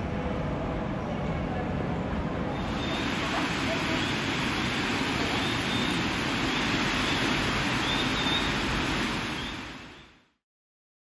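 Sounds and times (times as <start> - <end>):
heavy rain on a roof: 2.5 - 10.4.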